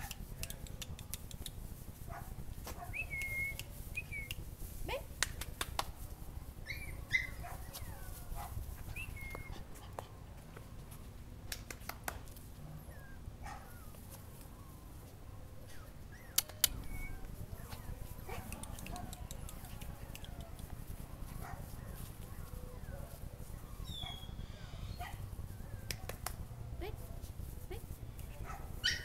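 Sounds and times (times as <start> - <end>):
small dog whimpering and yipping: 6.6 - 10.2, 12.7 - 20.6, 21.4 - 25.9, 28.8 - 29.0
sharp clicks: 16.4 - 17.0.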